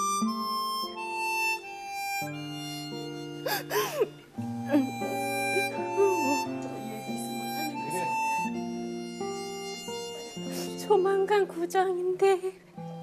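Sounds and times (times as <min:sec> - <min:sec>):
slow sustained chord music: 0:00.0 - 0:11.4
person sobbing: 0:03.4 - 0:06.5.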